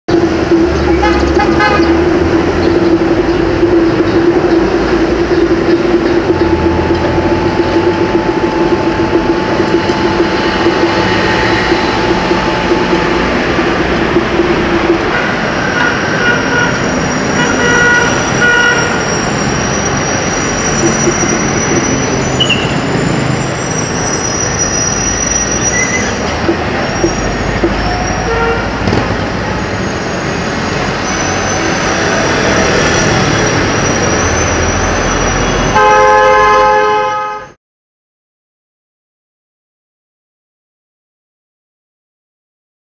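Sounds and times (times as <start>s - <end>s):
steady hum: 0.1s - 22.3s
city street traffic: 0.1s - 37.6s.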